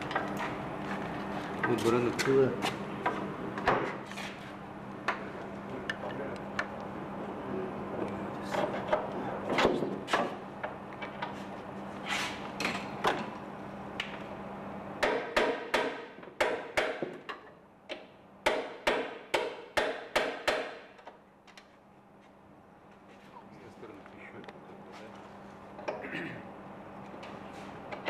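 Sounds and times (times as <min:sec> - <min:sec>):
steady low hum: 0:00.0 - 0:28.0
sharp tapping knocks on metal: 0:15.0 - 0:21.2.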